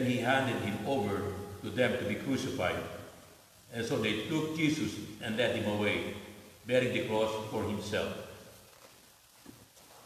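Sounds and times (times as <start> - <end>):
man speaking with echo: 0.0 - 8.4.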